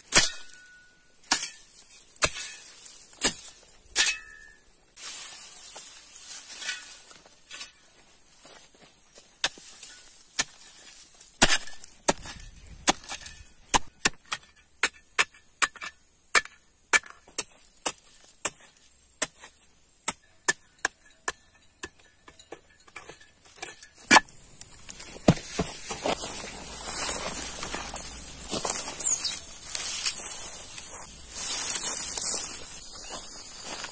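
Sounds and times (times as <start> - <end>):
hoe chopping into ground: 0.0 - 4.6, 9.4 - 20.7, 23.0 - 30.4.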